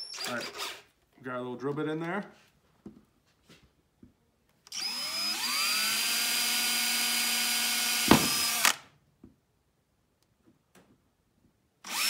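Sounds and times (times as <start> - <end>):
cordless drill whining: 0.0 - 0.9, 4.7 - 8.8
sharp knock: 8.1 - 8.5.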